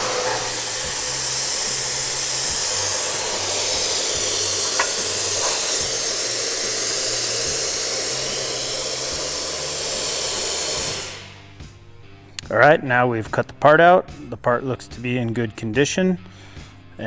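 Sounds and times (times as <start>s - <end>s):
low motor hum: 0.0s - 6.2s
air blowing hiss: 0.0s - 11.8s.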